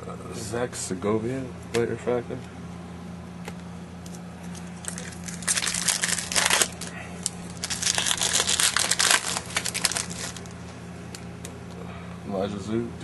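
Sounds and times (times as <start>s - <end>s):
foil wrapper crinkling: 4.5s - 10.7s.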